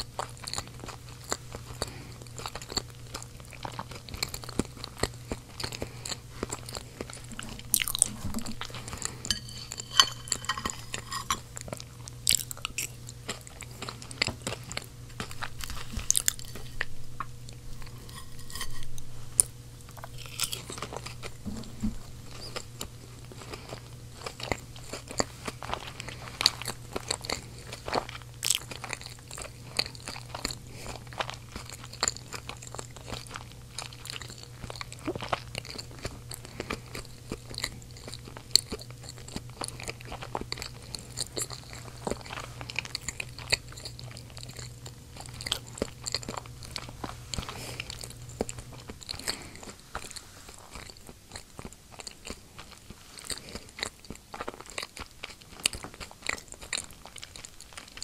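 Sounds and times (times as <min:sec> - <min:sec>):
child chewing food: 0:00.0 - 0:58.0.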